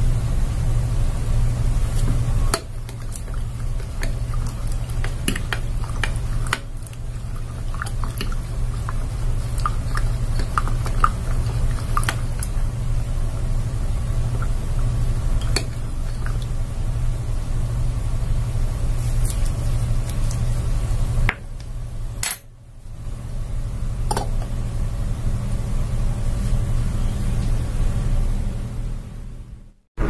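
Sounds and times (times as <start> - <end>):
steady low hum: 0.0 - 29.8
liquid swishing: 1.8 - 16.9.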